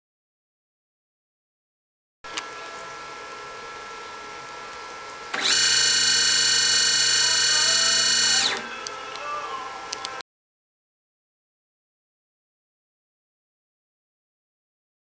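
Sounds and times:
stepper motor whine: 5.3 - 8.9.

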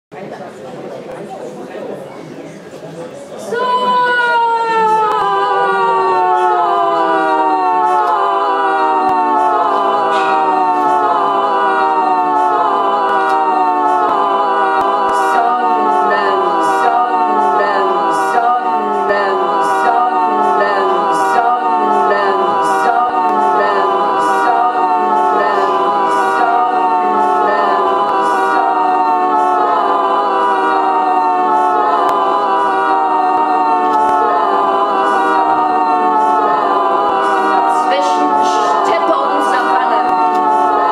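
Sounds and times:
choir-like voice loop drone: 1.2 - 40.9.

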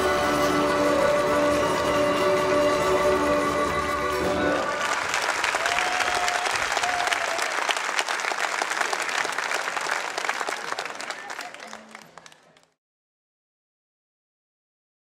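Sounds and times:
live music held chord: 0.0 - 5.1
audience applause: 3.3 - 12.8.

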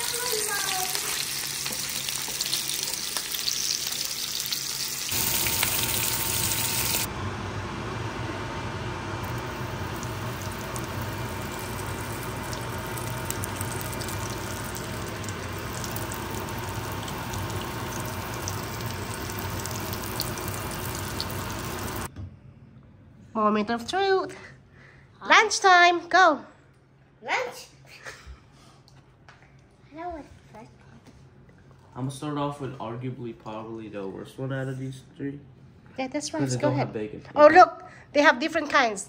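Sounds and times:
food sizzling in hot oil: 0.0 - 7.1, 9.0 - 22.1.

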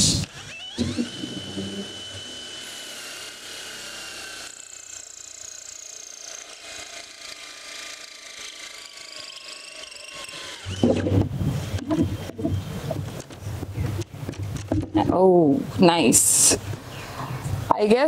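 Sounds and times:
drill motor whine: 0.0 - 13.2.

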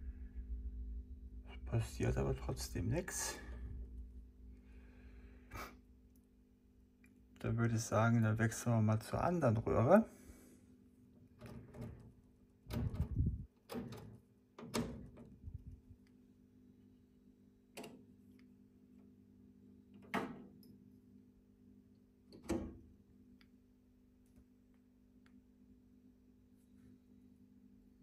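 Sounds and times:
low electrical hum: 0.0 - 28.0
switches and knobs clicking: 17.7 - 18.5.

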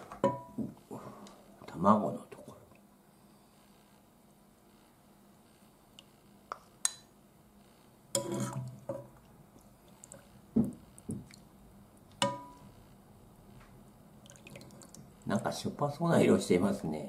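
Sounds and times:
metal ladle clinking against pot: 12.2 - 12.6.

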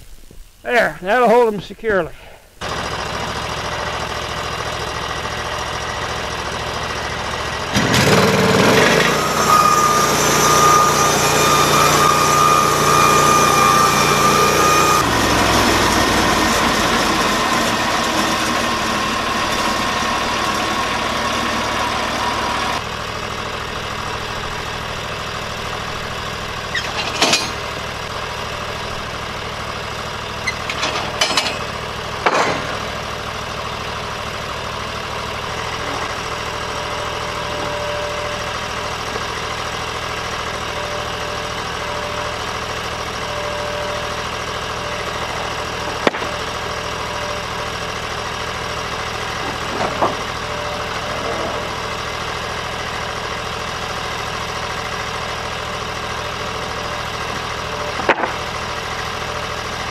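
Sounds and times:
engine idling: 1.2 - 59.9.

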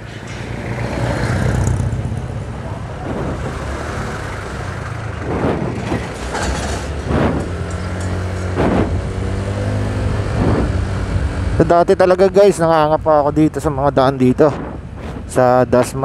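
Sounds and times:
wind noise on microphone: 2.9 - 4.0, 4.8 - 11.6, 13.4 - 16.0.

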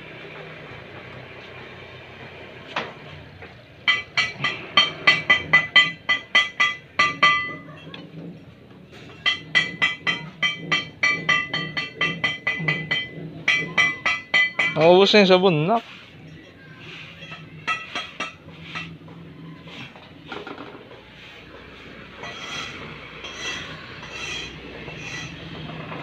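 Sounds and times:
wet sponge squeaking on wheel: 15.7 - 20.2, 21.0 - 25.7.

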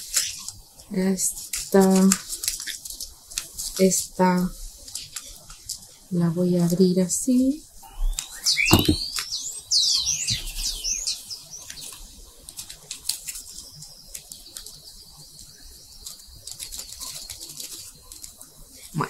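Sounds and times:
small birds chirping: 7.8 - 19.0.

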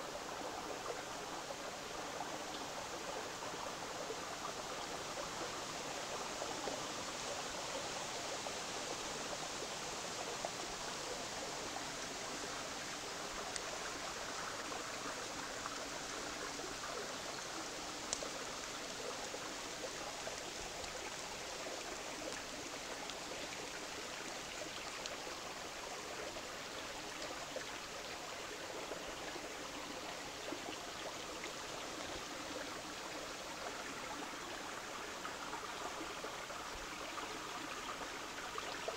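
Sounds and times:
faint clicks: 13.4 - 14.7, 15.3 - 28.2.

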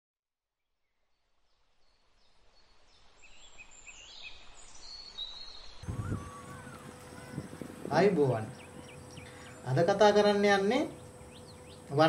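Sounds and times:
birds chirping: 3.4 - 12.0
thin high bird whistles: 5.8 - 7.9.

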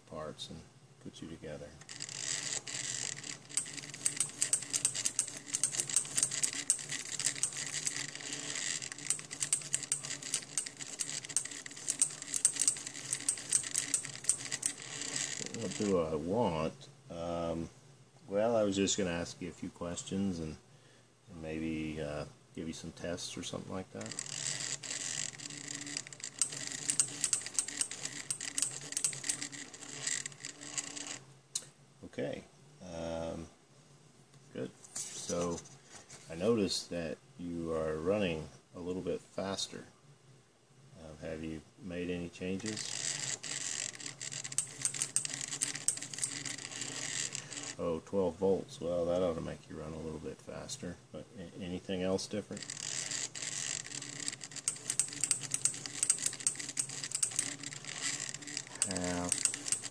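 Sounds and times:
sharp mechanical clicks: 1.8 - 15.9, 24.0 - 31.7, 42.7 - 47.8, 52.5 - 59.9
solenoid pen lifter: 1.8 - 15.9, 24.0 - 31.2, 42.8 - 47.8, 52.6 - 59.9
stepper motors buzzing: 1.8 - 16.0, 24.0 - 31.2, 42.6 - 47.8, 52.5 - 59.9.

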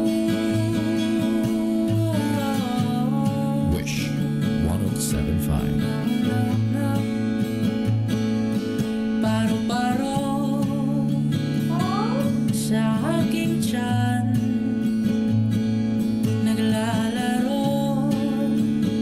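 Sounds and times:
man singing: 0.0 - 7.2
strummed acoustic guitar: 0.0 - 19.0.

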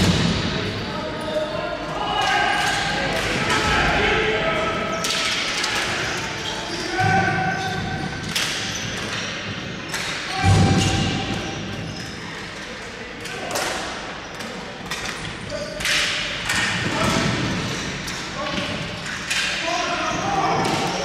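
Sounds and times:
players shouting: 1.0 - 8.1.

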